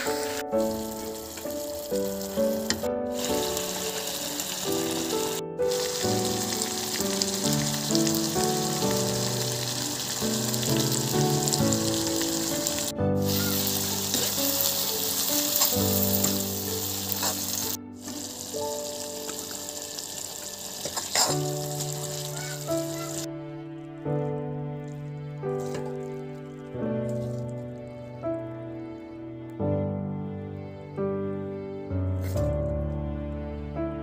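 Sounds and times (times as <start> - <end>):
curry bubbling and sizzling: 0.0 - 23.3
background music: 0.0 - 34.0.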